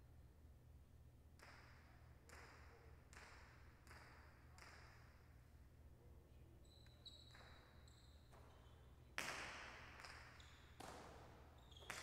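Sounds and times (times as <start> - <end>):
faint high squeaks: 6.6 - 8.9.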